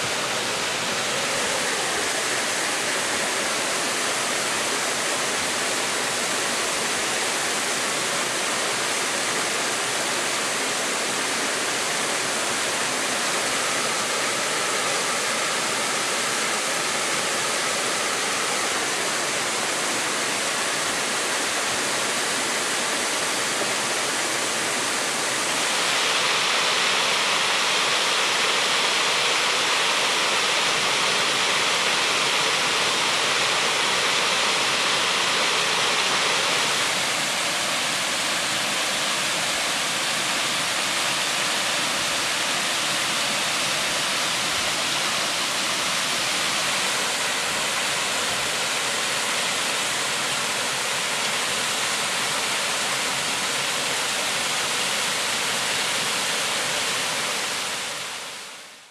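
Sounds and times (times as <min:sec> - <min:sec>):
waterfall splashing onto rocks: 0:22.6 - 0:58.2.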